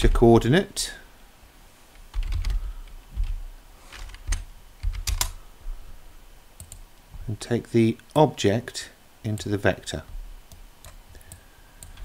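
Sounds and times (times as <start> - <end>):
keyboard typing: 2.1 - 5.4, 6.6 - 6.8, 10.5 - 12.0.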